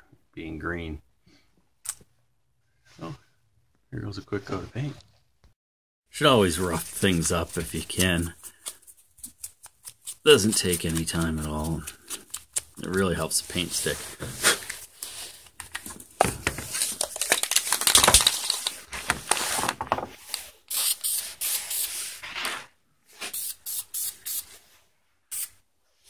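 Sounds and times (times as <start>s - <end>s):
scrubbing pad scratching: 6.4s - 14.6s
spray can hissing bursts: 20.7s - 21.9s, 23.3s - 24.4s, 25.3s - 25.5s.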